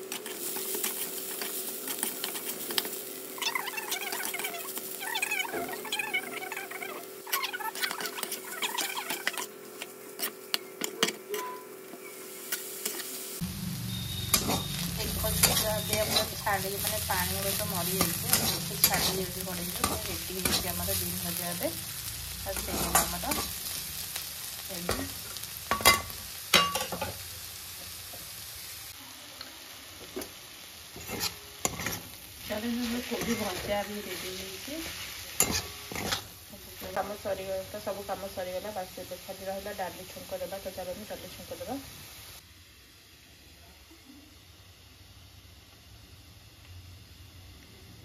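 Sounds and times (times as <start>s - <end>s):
food sizzling in a pan: 0.0s - 48.0s
spoon tapping and scraping a pan: 7.8s - 11.7s, 25.7s - 27.2s, 35.4s - 36.2s.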